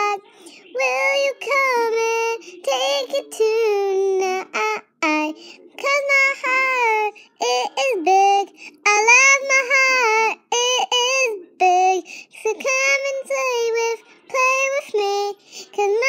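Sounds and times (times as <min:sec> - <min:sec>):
child singing unaccompanied: 0:00.0 - 0:16.0
child breathing: 0:08.5 - 0:08.8, 0:12.0 - 0:12.4, 0:15.4 - 0:15.8.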